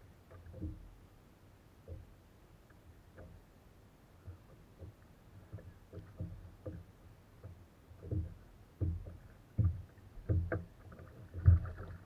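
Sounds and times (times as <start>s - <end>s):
thumps on plastic kayak hull: 4.3s - 12.0s.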